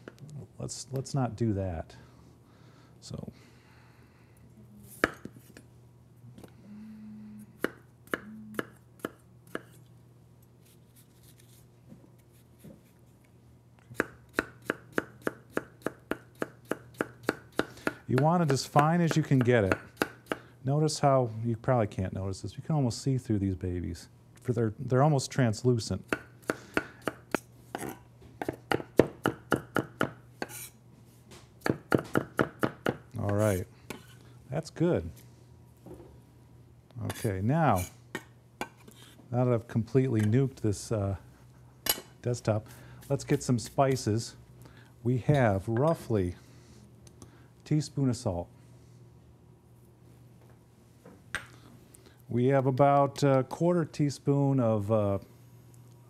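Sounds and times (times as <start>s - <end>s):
faint steady hum: 0.0s - 56.0s
knife chopping potato: 5.0s - 5.4s, 7.6s - 9.8s, 13.9s - 20.4s, 26.1s - 30.7s, 31.6s - 34.1s.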